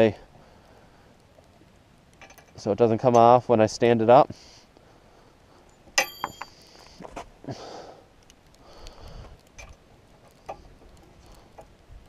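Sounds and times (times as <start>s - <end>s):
soft breathy hisses: 0.1s - 1.3s, 4.2s - 5.8s, 6.5s - 9.4s, 10.4s - 11.6s.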